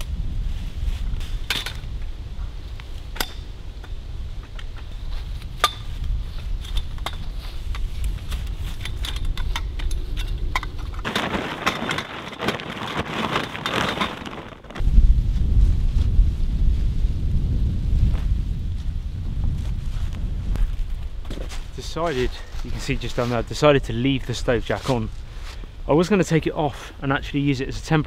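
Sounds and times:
wind rumbling on microphone: 0.0s - 28.0s
tent poles knocking and clicking: 3.2s - 14.8s
poles rustling into fabric bag: 11.0s - 14.8s.

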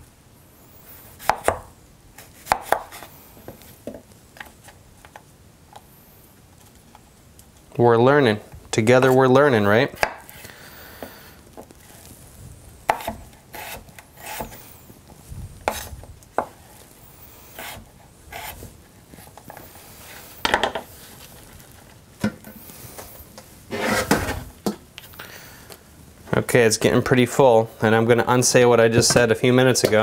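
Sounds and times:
knife scraping cutting board: 12.9s - 14.7s, 15.7s - 16.0s, 17.4s - 21.2s, 23.7s - 24.5s.

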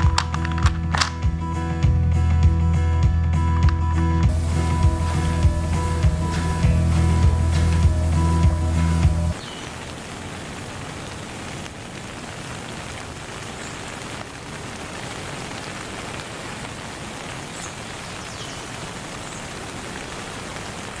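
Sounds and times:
steady rain: 4.3s - 21.0s.

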